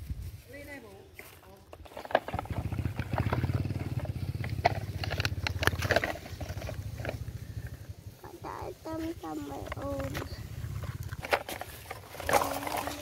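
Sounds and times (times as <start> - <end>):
plastic toy clicks and scrapes: 1.8 - 7.2, 9.4 - 13.0
low pulsing engine-like rumble: 4.0 - 11.2.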